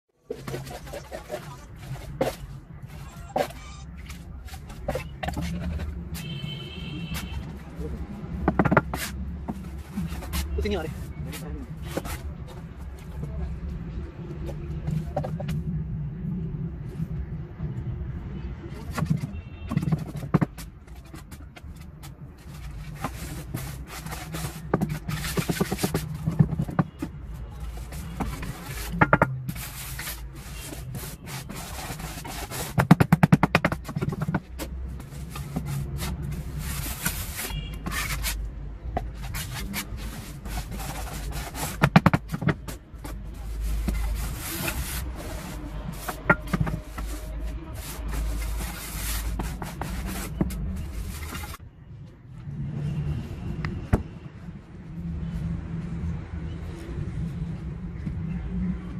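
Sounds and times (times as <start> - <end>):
cement mix scraping in mould: 22.5 - 27.0, 39.0 - 51.6.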